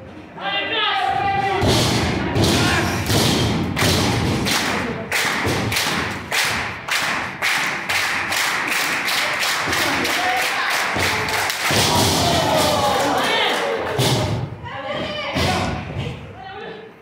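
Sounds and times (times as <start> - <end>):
crowd noise in a hall: 0.0 - 17.0
thuds and slaps: 1.4 - 4.8, 11.0 - 12.8.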